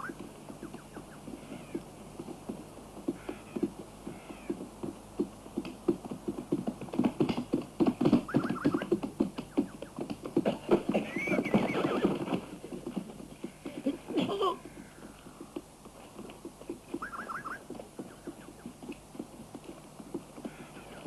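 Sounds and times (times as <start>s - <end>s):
horse hooves clattering: 0.0s - 21.0s
horse neighing: 8.3s - 8.9s, 11.0s - 12.4s.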